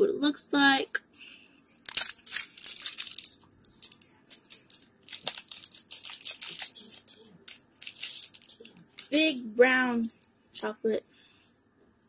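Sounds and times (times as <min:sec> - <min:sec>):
wrapper tearing and crinkling: 0:01.8 - 0:09.2.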